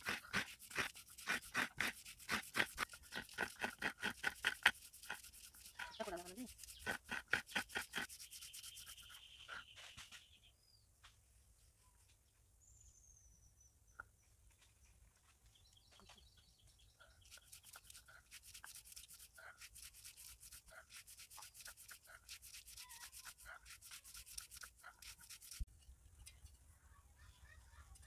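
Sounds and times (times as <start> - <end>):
grinding stone rubbing strokes: 0.0 - 9.5, 17.2 - 25.7.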